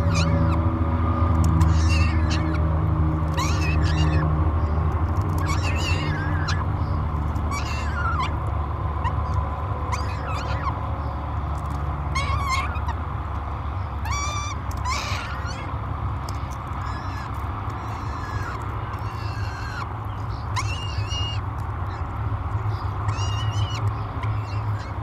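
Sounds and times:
falcon chick begging calls: 0.0 - 0.6, 1.5 - 2.6, 3.3 - 8.4, 9.0 - 10.8, 12.1 - 13.0, 14.0 - 15.7, 16.7 - 25.0.

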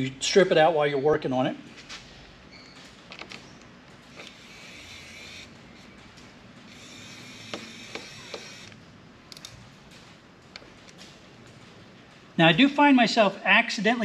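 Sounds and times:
electric screwdriver running: 4.1 - 5.5, 6.7 - 8.8.

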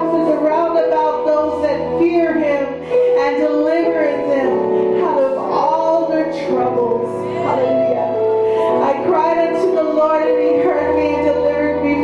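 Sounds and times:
electronic keyboard chords: 0.0 - 12.0.

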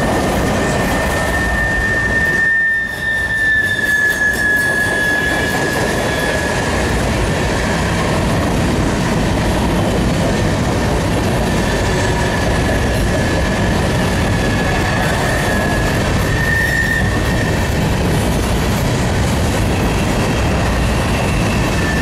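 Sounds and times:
train wheels rumbling on rails: 0.0 - 22.0
high wheel squeal: 0.6 - 6.9, 11.5 - 17.9, 19.8 - 22.0.

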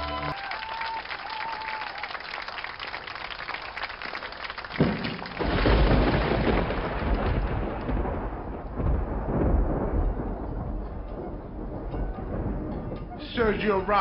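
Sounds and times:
deep thunder-like rumble with hiss: 5.4 - 14.0.

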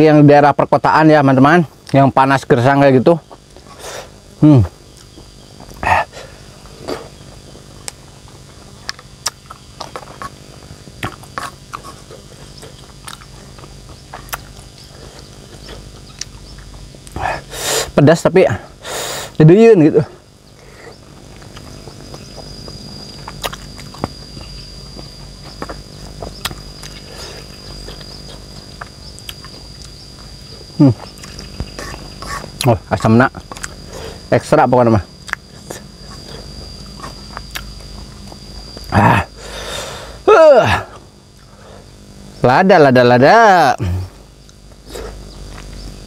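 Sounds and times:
faint low hum: 0.0 - 46.0
high insect whine: 0.0 - 46.0
man humming: 5.8 - 7.0, 38.8 - 41.1, 43.8 - 44.2
person chewing: 7.8 - 10.4, 11.0 - 17.3, 21.0 - 34.3, 35.2 - 38.9, 44.4 - 45.8
wet mouth clicks and smacks: 23.2 - 24.1.

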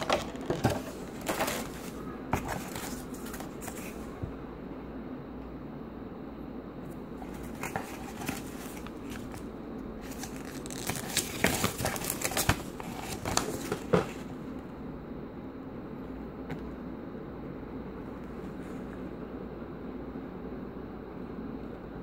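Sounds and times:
paper rustling and crinkling: 0.0 - 4.3, 7.2 - 14.3
low room hum: 0.0 - 22.0.

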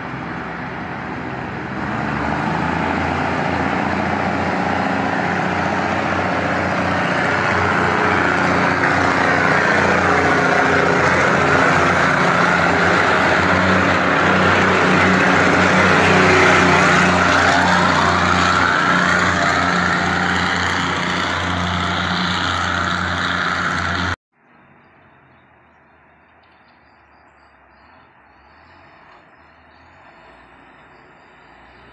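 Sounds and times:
diesel train engine droning: 0.0 - 24.2.

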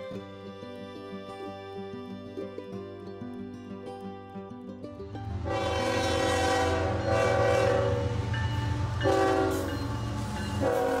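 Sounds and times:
low train rumble: 5.0 - 11.0
locomotive air horn chord: 5.4 - 11.0.

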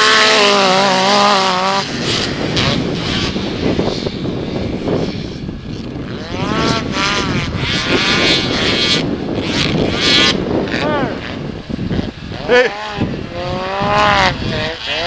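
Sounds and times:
snowmobile engines revving: 0.0 - 15.0.

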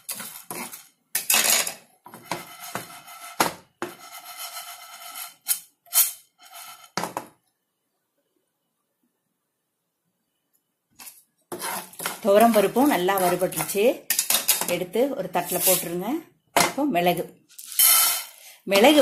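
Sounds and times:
wooden spatula scraping a pan: 0.0 - 1.3, 2.0 - 5.7, 6.4 - 7.2, 11.0 - 16.0
lentils rattling in a pan: 17.6 - 19.0.

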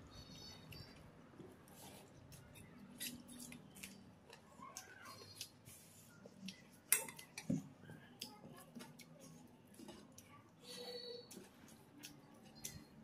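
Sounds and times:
chewing: 8.2 - 13.0.

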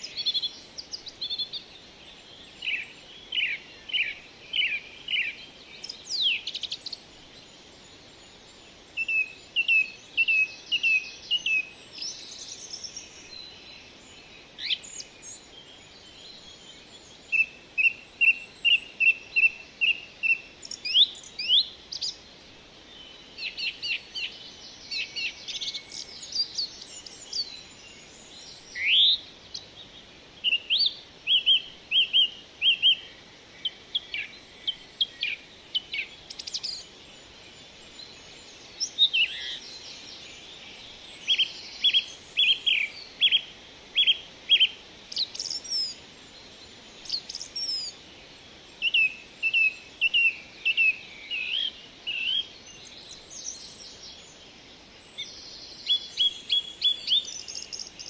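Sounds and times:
birds chirping: 0.0 - 58.0.

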